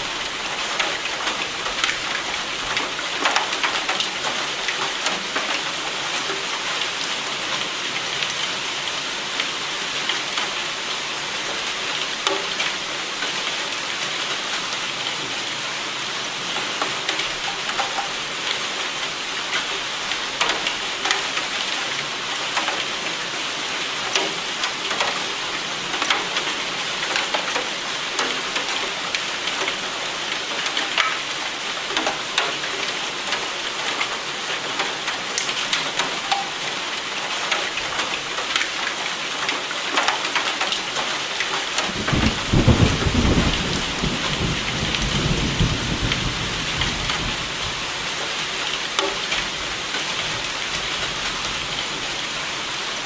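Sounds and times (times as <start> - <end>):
rain with drop ticks: 0.0 - 53.0
thunder rumbling: 42.0 - 47.4.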